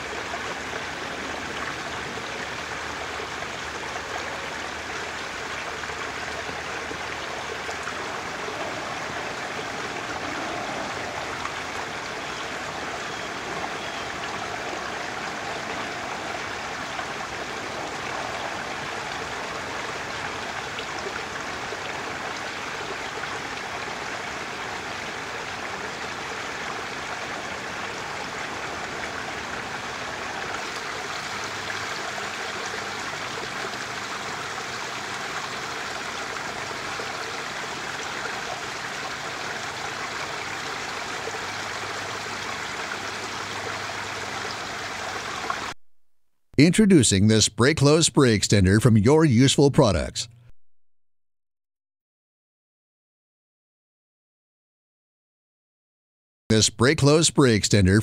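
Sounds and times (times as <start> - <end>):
running water rushing: 0.0 - 45.8.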